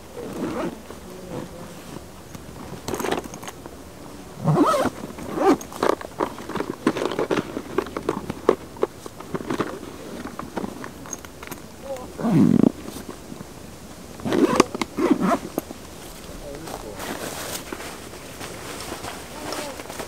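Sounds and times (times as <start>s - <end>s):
hands rustling grass: 11.8s - 20.0s.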